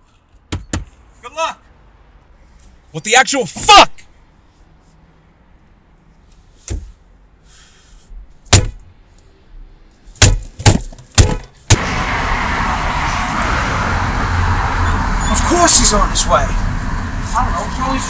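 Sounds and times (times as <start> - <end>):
street traffic noise: 0.0 - 18.0
sharp knocks and thumps: 0.3 - 1.0, 10.2 - 11.8.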